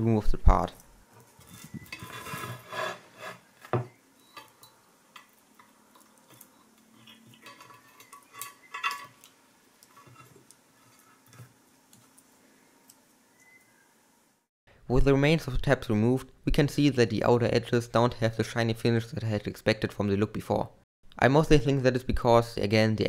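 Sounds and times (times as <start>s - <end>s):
metallic clinks and scrapes: 1.2s - 3.4s, 4.3s - 11.6s.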